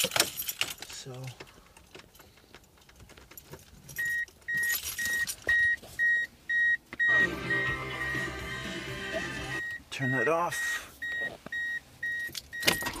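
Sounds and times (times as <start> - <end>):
car warning chime beeping: 4.0 - 13.0
car radio playing loudly: 5.1 - 13.0.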